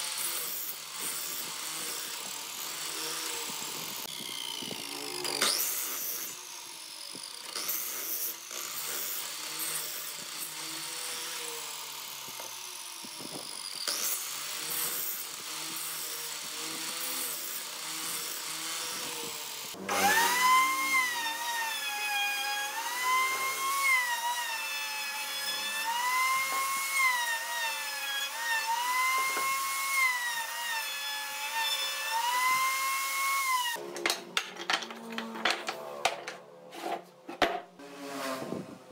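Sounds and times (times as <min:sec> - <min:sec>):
mitre saw cutting wood: 0:00.0 - 0:33.9
router whining: 0:00.0 - 0:36.5.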